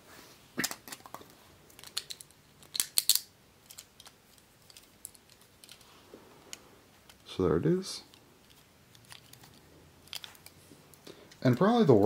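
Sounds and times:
small plastic and metal parts clicking: 0.6 - 5.8, 8.1 - 10.6.

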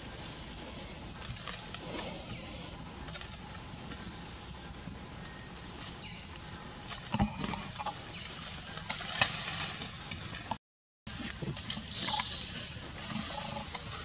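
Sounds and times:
forest background hiss: 0.0 - 10.5
leaves rustling: 0.0 - 14.0.

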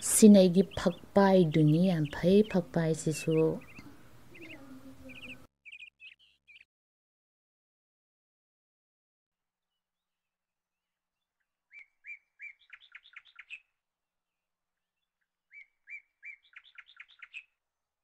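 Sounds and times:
songbird singing: 0.0 - 6.7, 11.2 - 13.7, 14.8 - 17.6.

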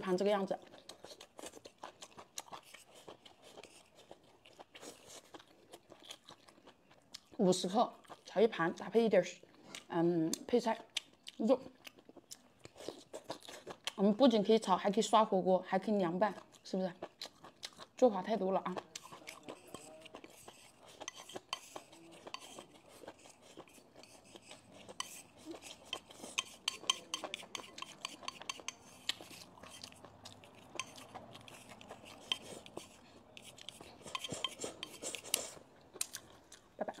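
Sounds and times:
chopsticks tapping and scraping bowl: 19.0 - 35.6.

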